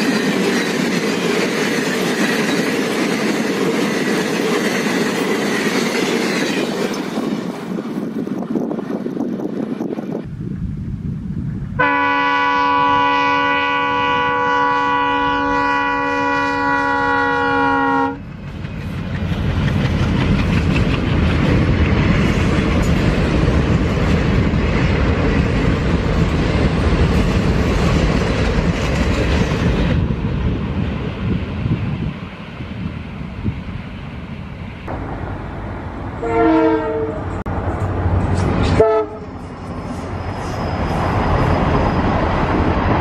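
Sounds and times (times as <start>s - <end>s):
train rumbling past: 0.0s - 43.0s
locomotive horn blast: 11.8s - 18.2s, 36.2s - 37.5s, 38.6s - 39.4s.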